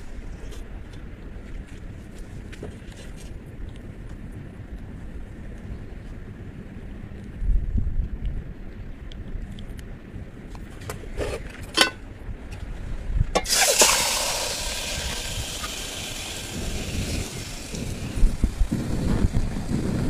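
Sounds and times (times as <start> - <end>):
wind rumbling on microphone: 0.0 - 20.0
hiss from pot on fire: 13.4 - 20.0.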